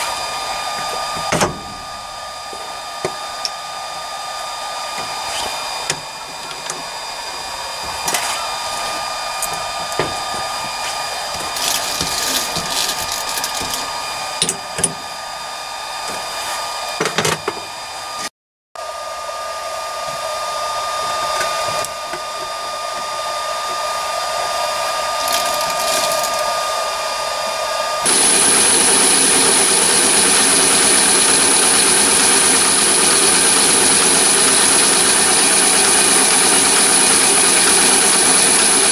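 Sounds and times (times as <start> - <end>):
lathe motor whirring: 0.0 - 18.2, 18.8 - 38.9
high whine: 18.8 - 38.9.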